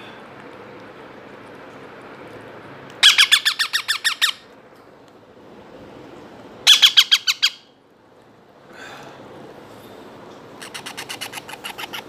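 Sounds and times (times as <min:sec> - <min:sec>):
parrot chick begging calls: 0:03.0 - 0:04.5, 0:06.7 - 0:07.8, 0:10.6 - 0:12.0.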